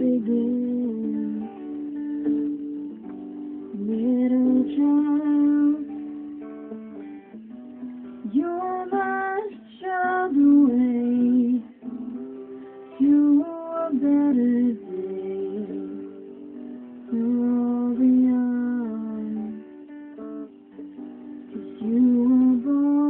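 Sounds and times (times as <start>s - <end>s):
electric and acoustic guitars: 0.0s - 23.0s.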